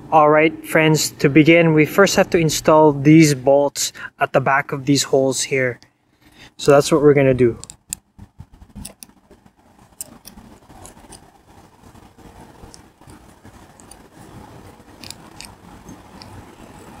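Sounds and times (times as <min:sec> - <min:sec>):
low background rumble: 0:05.8 - 0:17.0.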